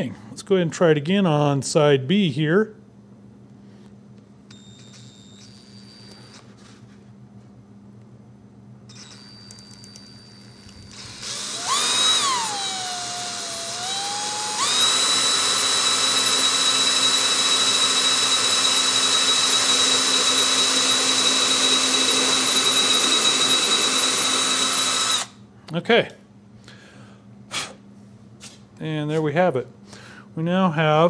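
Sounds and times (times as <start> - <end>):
cordless drill drilling into wood: 10.9 - 25.3.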